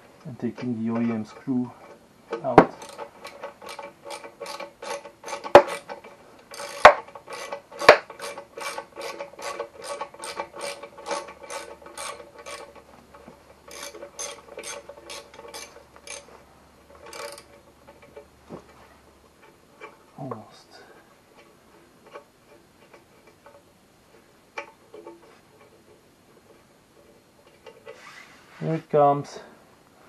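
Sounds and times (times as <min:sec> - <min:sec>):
sharp knocks: 0:02.5 - 0:02.8
ratchet wrench clicking: 0:02.8 - 0:05.9, 0:06.5 - 0:12.7, 0:13.7 - 0:16.3, 0:17.0 - 0:18.2.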